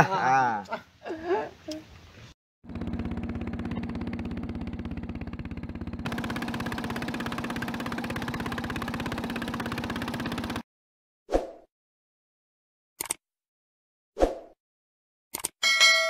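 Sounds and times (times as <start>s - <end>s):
boat engine running: 2.6s - 10.6s.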